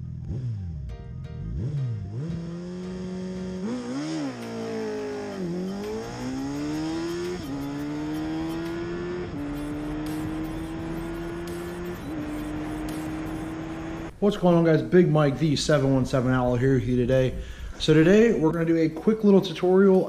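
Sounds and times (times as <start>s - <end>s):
motorcycle engine accelerating: 0.0s - 14.2s
gear upshifts: 1.5s - 14.2s.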